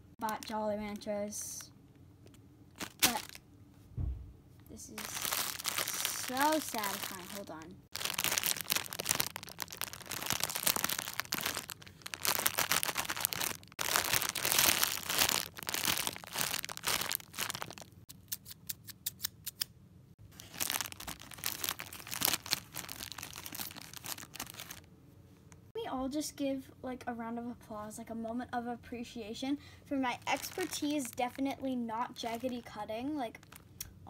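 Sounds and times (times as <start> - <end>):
plastic candy bag crinkling: 0.2 - 1.1, 2.8 - 3.4, 4.9 - 18.0, 20.3 - 24.9, 30.0 - 33.8.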